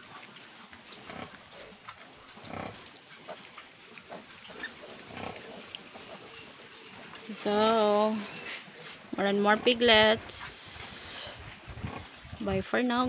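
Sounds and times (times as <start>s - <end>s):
piglets grunting and squeaking: 0.9s - 7.2s.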